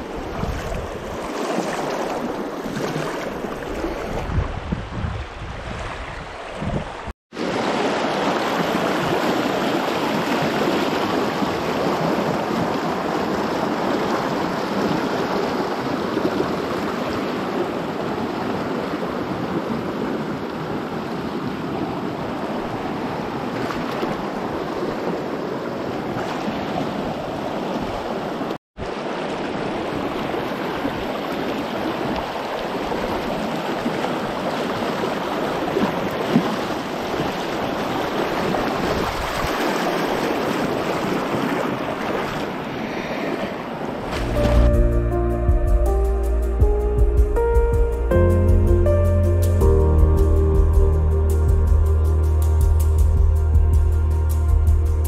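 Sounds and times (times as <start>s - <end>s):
creek rushing over rocks: 5.6s - 21.3s, 43.4s - 44.9s.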